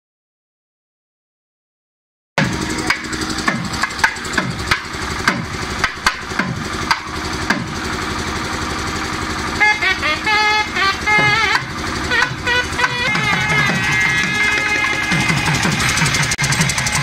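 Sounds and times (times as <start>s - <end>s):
drums struck in steady rhythm: 2.4s - 17.0s
high melodic line: 9.5s - 17.0s.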